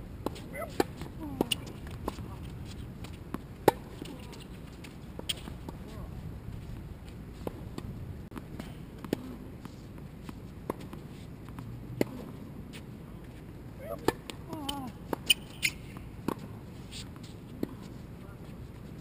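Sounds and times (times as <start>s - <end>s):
tennis ball bouncing and struck: 0.2s - 2.4s, 3.0s - 4.6s, 7.4s - 12.4s, 13.9s - 16.6s.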